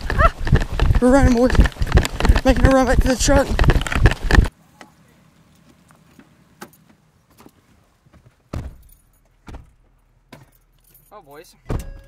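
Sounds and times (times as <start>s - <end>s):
truck door thud: 8.5s - 10.6s, 11.7s - 12.0s.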